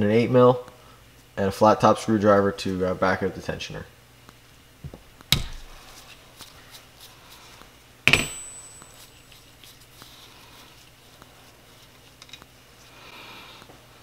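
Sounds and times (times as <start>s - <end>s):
metal hand tools clinking: 8.1s - 9.4s.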